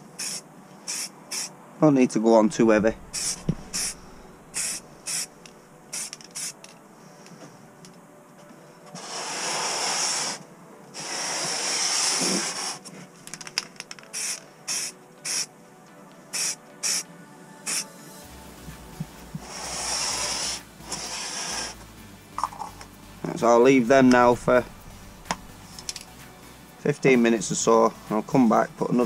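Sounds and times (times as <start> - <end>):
aerosol can spraying: 0.2 - 1.5, 3.2 - 6.7, 9.0 - 12.9, 14.1 - 15.5, 16.3 - 17.9, 18.5 - 23.0, 24.0 - 26.7.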